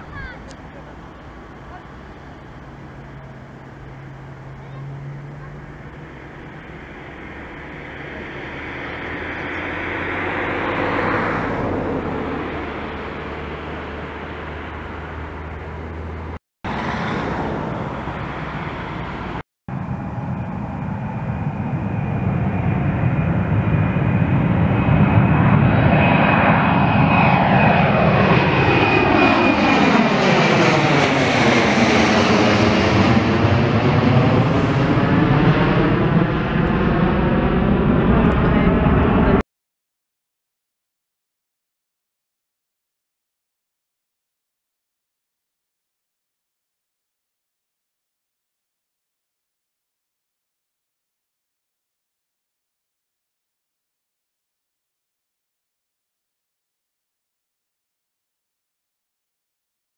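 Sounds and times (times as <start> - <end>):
high engine whine: 0.0 - 39.4
jet engines at takeoff power: 0.0 - 39.4.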